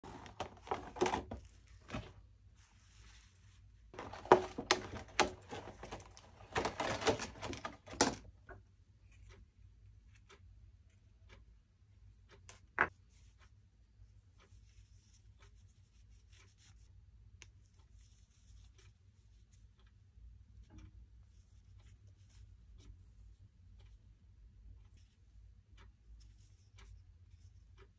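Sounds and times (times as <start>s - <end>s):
cloth and webbing rustling: 0.0s - 8.2s.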